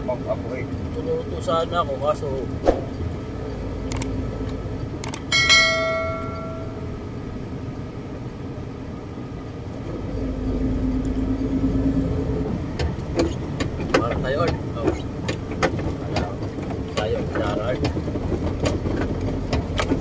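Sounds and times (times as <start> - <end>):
truck engine droning: 0.0 - 20.0
metallic clang: 5.3 - 7.0.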